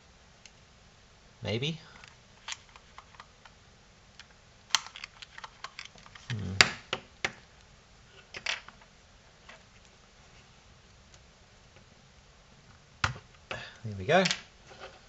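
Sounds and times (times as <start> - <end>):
hard plastic clicks: 4.2 - 7.4
person humming: 6.2 - 6.8.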